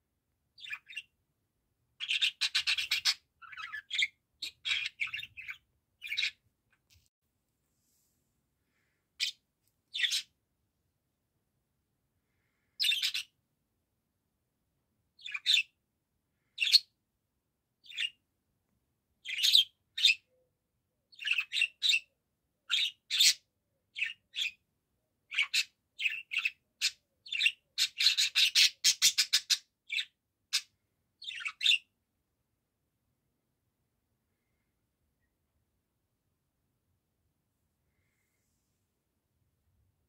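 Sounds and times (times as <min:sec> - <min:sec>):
budgerigar chirping: 0:00.6 - 0:01.1, 0:02.0 - 0:06.4, 0:09.2 - 0:10.3, 0:12.8 - 0:13.3, 0:15.2 - 0:15.8, 0:19.2 - 0:20.3, 0:21.1 - 0:22.1, 0:22.7 - 0:24.6, 0:25.3 - 0:31.9.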